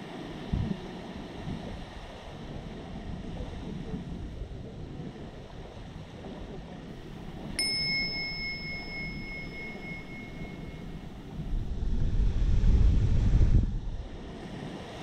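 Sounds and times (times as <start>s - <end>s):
wind on microphone: 0.0s - 15.0s
small bell ringing: 7.0s - 11.4s.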